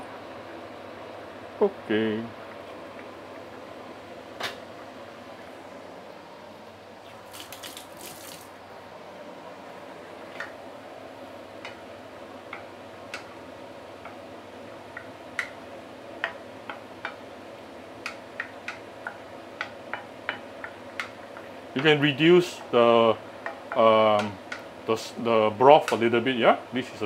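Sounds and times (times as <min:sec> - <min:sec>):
liquid simmering in a wok: 0:10.0 - 0:21.7, 0:23.2 - 0:24.9
wooden spoon knocking against pan: 0:16.2 - 0:17.2, 0:18.0 - 0:21.9.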